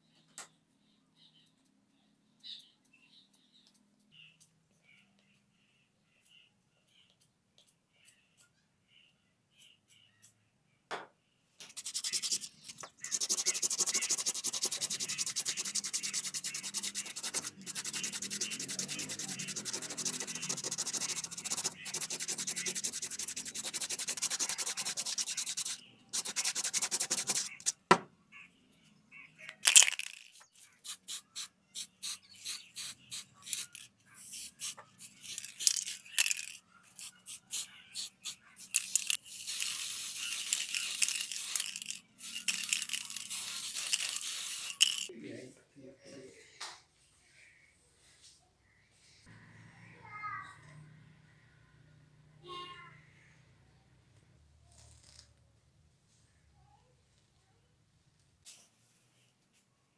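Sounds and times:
sandpaper rubbing on plastic: 11.6 - 27.8, 30.0 - 45.1.

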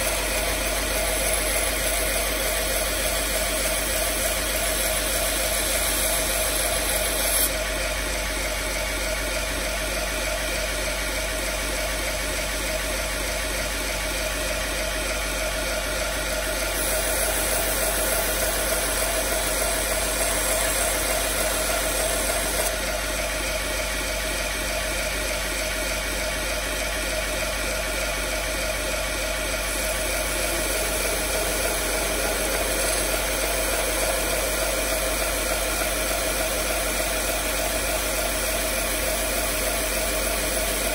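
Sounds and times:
belt grinder running: 0.0 - 7.9, 15.2 - 24.7, 28.0 - 40.9.

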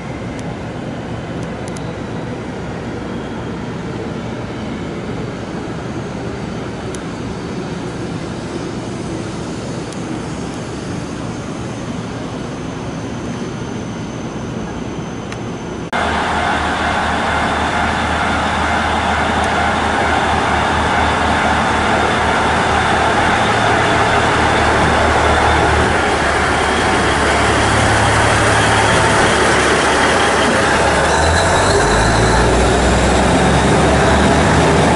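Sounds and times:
diesel railcar engine humming: 14.6 - 34.9.

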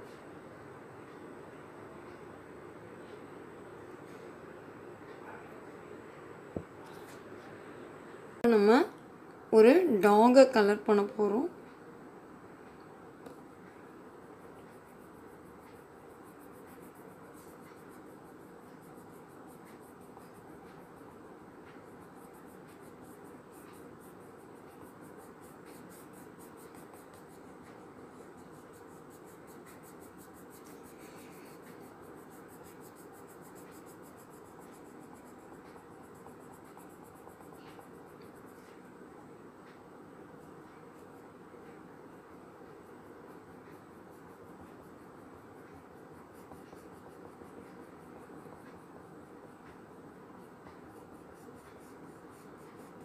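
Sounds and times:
steady hiss: 11.7 - 53.0
pencil scratching on paper: 14.2 - 39.1, 40.4 - 53.0.

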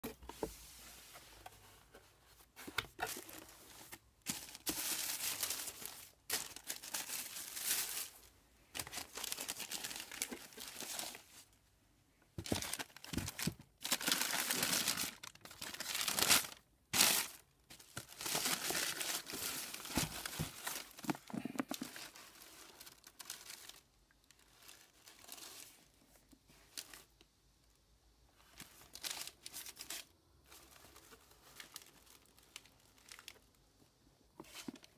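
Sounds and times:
tissue paper crinkling: 1.6 - 11.5, 12.4 - 25.8, 28.6 - 33.4
plastic bag rustling: 1.8 - 11.6, 12.4 - 23.8.

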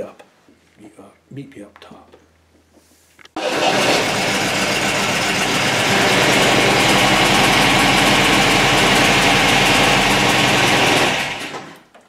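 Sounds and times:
car engine running steadily: 3.5 - 11.4.

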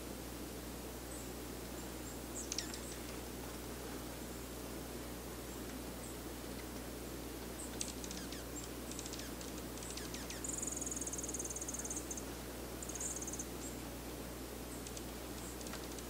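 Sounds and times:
small bird calling: 1.1 - 3.1, 7.6 - 13.8
high bird trill: 2.4 - 3.0, 7.8 - 13.8.

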